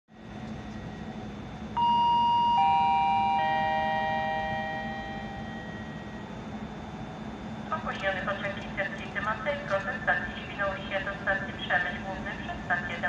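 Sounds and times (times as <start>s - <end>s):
descending three-tone chime: 1.8s - 6.3s.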